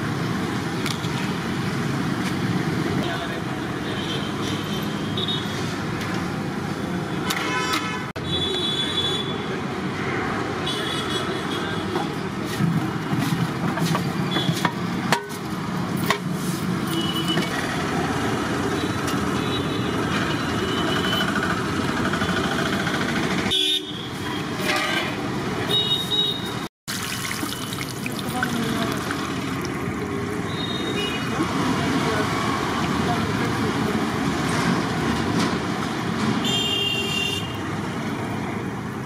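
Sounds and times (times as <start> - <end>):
passing traffic: 0.0 - 39.0
vehicle horns honking: 7.2 - 9.4, 23.5 - 26.7, 30.4 - 31.4, 36.4 - 37.6.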